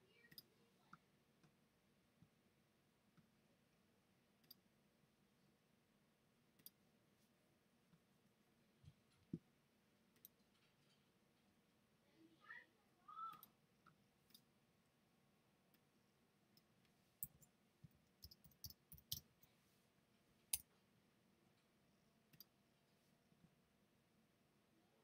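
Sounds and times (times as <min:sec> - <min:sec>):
mouse clicks: 0:04.4 - 0:04.6, 0:06.6 - 0:06.8, 0:18.2 - 0:19.3, 0:22.3 - 0:22.5
keyboard keystrokes: 0:18.2 - 0:19.2.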